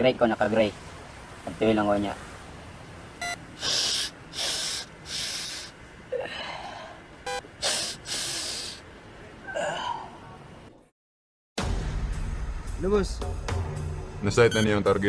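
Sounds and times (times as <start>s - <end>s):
person sniffing hard: 3.6s - 5.7s, 7.6s - 8.8s
short electronic beep: 14.5s - 14.8s.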